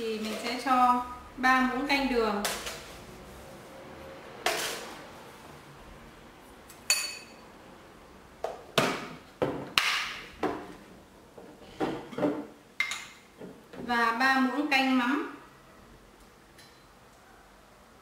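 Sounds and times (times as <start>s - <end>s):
metal spoon clinking glass bowl: 6.9s - 7.4s.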